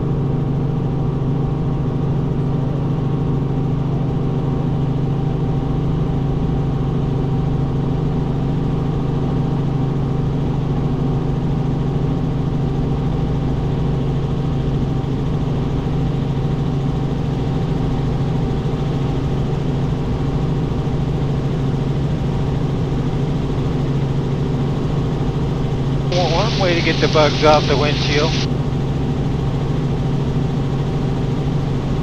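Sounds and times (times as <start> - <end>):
helicopter engine and rotors drone: 0.0 - 32.0.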